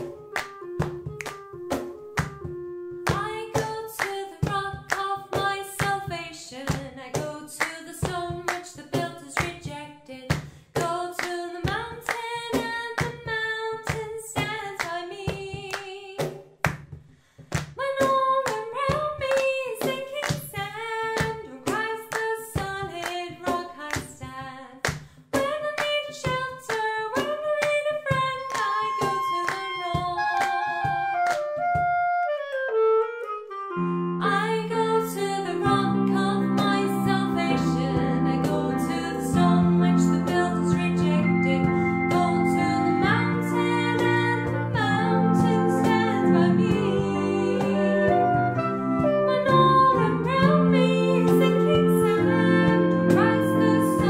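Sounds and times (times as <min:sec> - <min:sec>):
body percussion claps and snaps: 0:00.0 - 0:06.1, 0:10.3 - 0:32.0
woman singing a cappella: 0:03.1 - 0:16.4, 0:17.8 - 0:31.0, 0:34.2 - 0:54.0.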